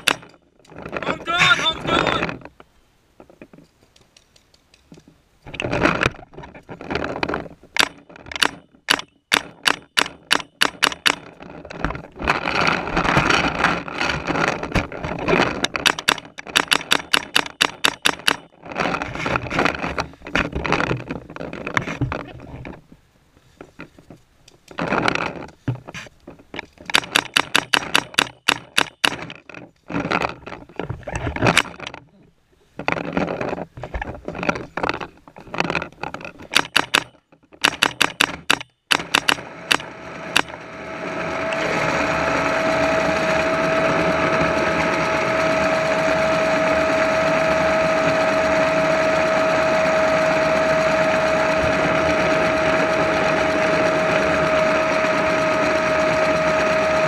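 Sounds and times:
paintball marker firing rapid shots: 0:07.8 - 0:11.3, 0:15.8 - 0:18.5, 0:26.9 - 0:29.3, 0:36.5 - 0:40.5
rough rushing noise: 0:38.9 - 0:57.0.

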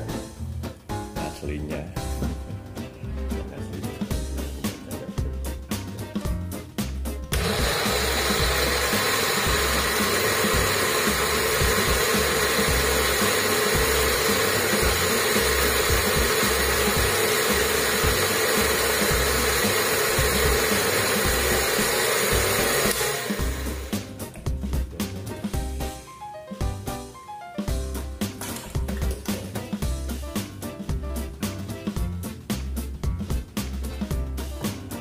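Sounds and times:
electric blender running: 0:07.3 - 0:24.5.

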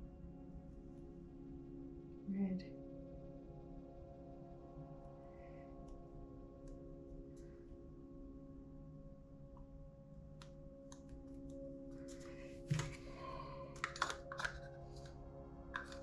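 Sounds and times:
ambient music with held tones: 0:00.0 - 0:16.0
paint bottles clicking: 0:13.8 - 0:15.2, 0:15.8 - 0:16.0.

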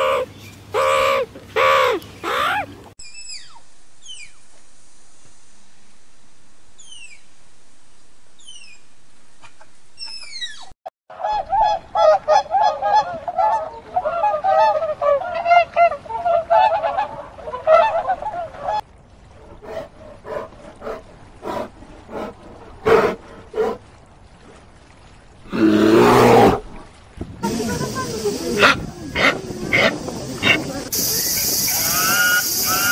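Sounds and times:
steady hiss: 0:27.4 - 0:32.9
waterfowl honking: 0:27.5 - 0:30.7, 0:31.6 - 0:32.9.

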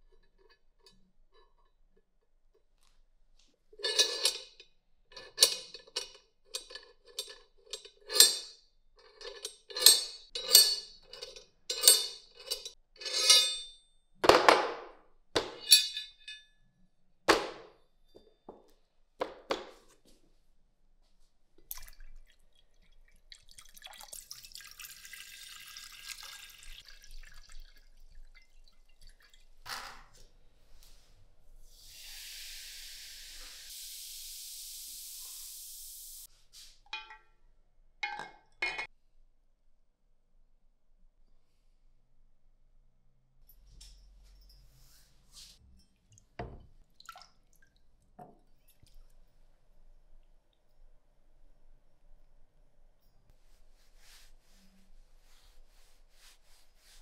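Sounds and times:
water poured into glass beaker: 0:21.7 - 0:29.6.

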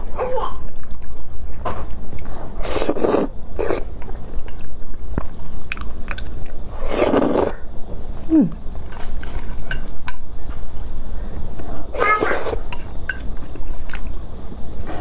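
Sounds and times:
chewing: 0:00.8 - 0:07.6
noodles slurped: 0:02.6 - 0:03.9, 0:06.8 - 0:07.6.

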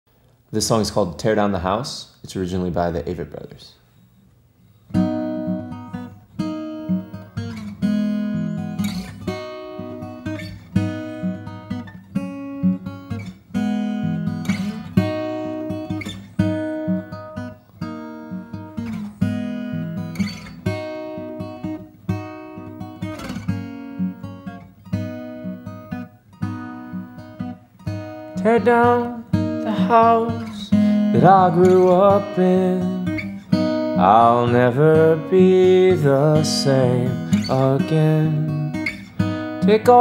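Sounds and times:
acoustic guitar chords: 0:04.0 - 0:40.0.

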